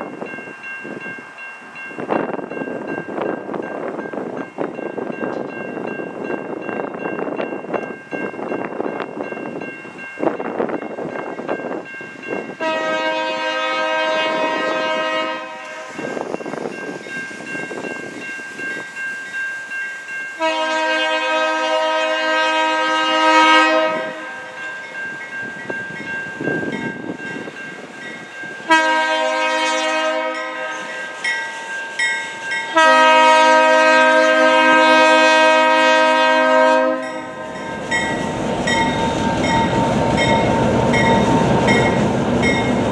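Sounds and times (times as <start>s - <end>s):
crossing bells ringing: 0.0s - 42.9s
locomotive horn blasts: 12.6s - 16.0s, 20.4s - 24.6s, 28.6s - 31.1s, 32.7s - 41.9s.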